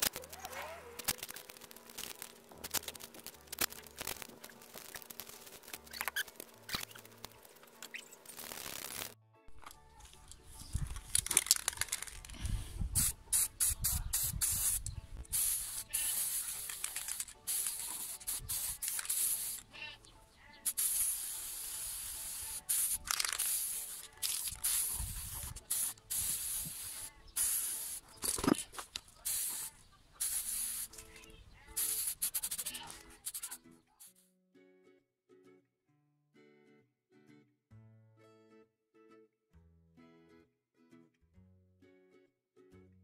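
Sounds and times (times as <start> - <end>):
spray paint can hissing: 0.0 - 9.2, 10.7 - 19.7, 20.6 - 34.2.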